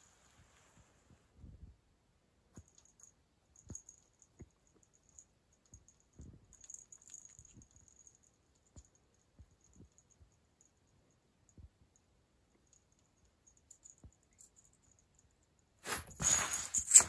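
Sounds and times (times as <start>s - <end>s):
faint clicks and soft taps: 2.5s - 15.6s.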